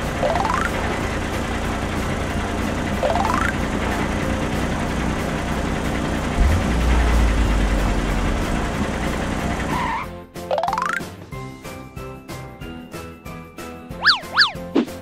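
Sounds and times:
deep engine rumble: 0:00.0 - 0:10.3
cartoon truck engine: 0:00.0 - 0:15.0
short rising sweep: 0:06.4 - 0:09.7.

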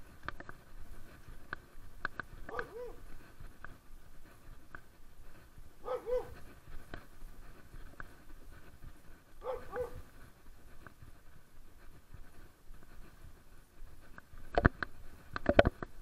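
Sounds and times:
faint clicks: 0:00.0 - 0:16.0
dog yelping: 0:02.5 - 0:03.0, 0:05.8 - 0:06.4, 0:09.4 - 0:10.0.

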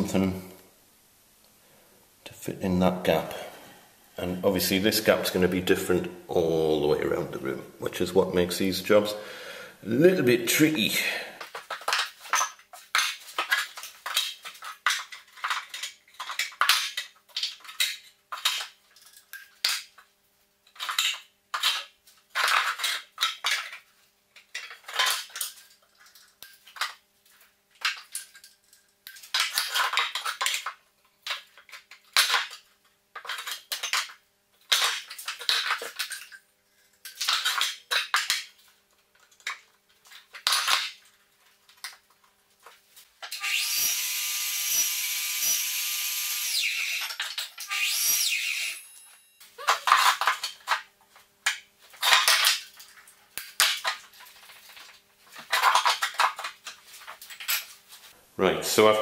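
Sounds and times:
tools clattering on wood: 0:11.4 - 0:20.0, 0:51.5 - 0:57.7.

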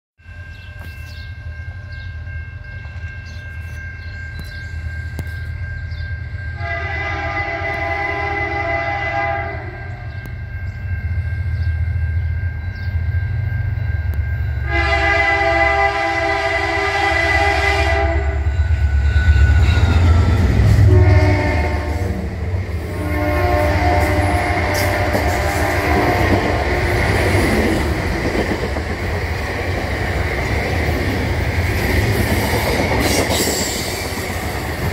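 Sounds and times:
diesel locomotive passing: 0:00.2 - 0:34.9
train air horn blasts: 0:06.5 - 0:10.4, 0:14.6 - 0:27.6.

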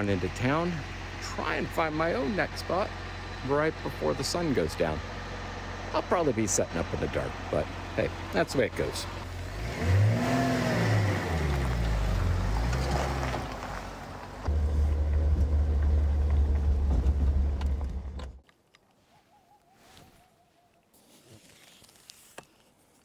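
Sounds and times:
tyres on dirt road: 0:00.0 - 0:23.0
pickup engine revving: 0:00.4 - 0:18.4.

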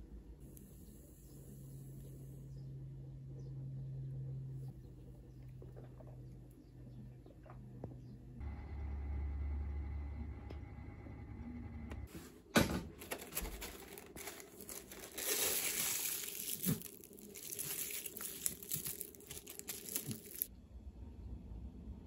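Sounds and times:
plastic film crinkling: 0:13.0 - 0:20.5.

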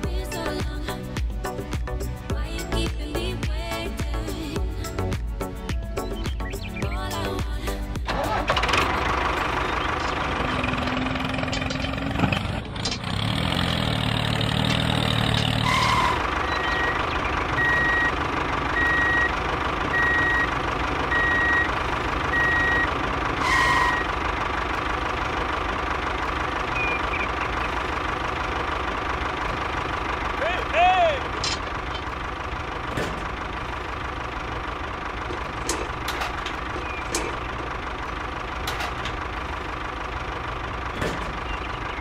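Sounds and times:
vehicle engine running: 0:00.0 - 0:42.0
reversing alarm beeping: 0:15.7 - 0:24.2, 0:26.7 - 0:27.4.

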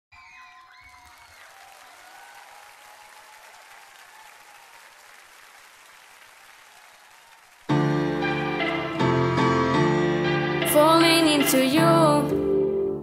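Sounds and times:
audience applauding: 0:00.1 - 0:08.8.

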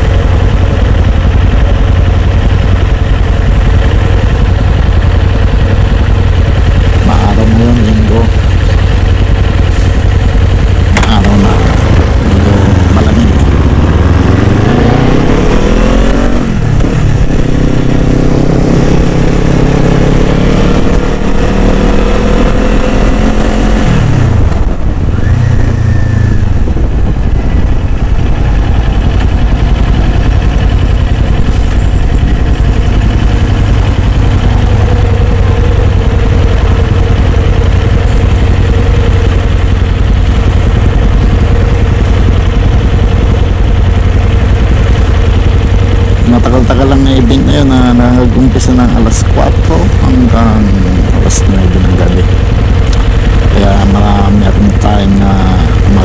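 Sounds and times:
motorcycle engine accelerating: 0:00.0 - 0:56.0.

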